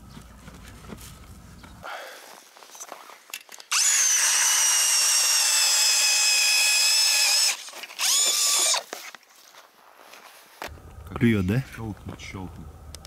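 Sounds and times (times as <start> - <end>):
cordless drill motor whine: 3.7 - 8.9.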